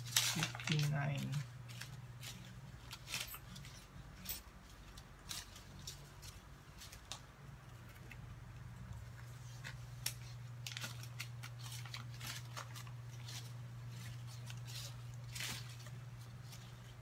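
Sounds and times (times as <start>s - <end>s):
paper banknotes crinkling: 0.0s - 7.8s, 9.0s - 17.0s
low electrical hum: 0.0s - 17.0s.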